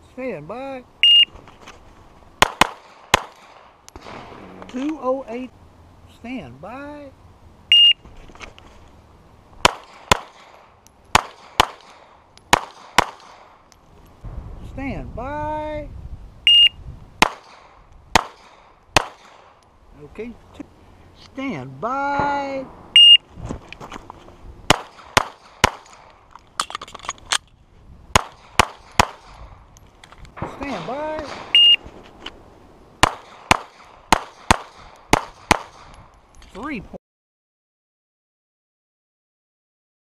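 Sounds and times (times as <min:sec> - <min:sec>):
pistol gunshots: 0:02.4 - 0:04.7, 0:09.6 - 0:13.6, 0:17.2 - 0:19.6, 0:24.7 - 0:26.1, 0:28.1 - 0:29.5, 0:30.4 - 0:31.9, 0:33.0 - 0:35.9.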